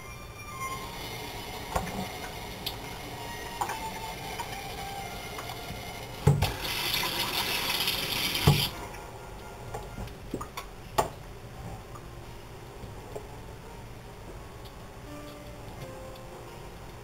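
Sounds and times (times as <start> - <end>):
water hissing from faucet: 0.8 - 8.8
faucet knock: 8.4 - 8.7.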